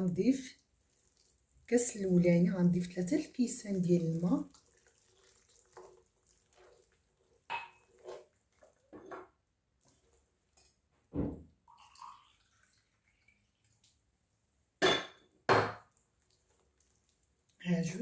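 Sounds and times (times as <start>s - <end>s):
hands kneading wet mixture: 0.0s - 10.9s, 15.9s - 18.0s.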